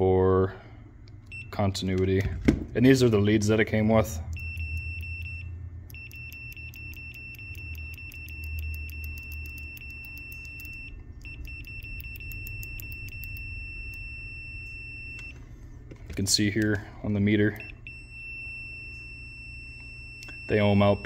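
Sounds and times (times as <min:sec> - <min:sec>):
steady high continuity beep: 0:04.3 - 0:15.5, 0:16.3 - 0:21.0.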